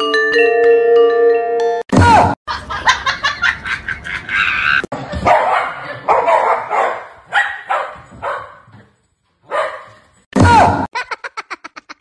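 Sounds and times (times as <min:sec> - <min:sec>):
dogs barking: 0:04.6 - 0:08.8, 0:09.4 - 0:10.1.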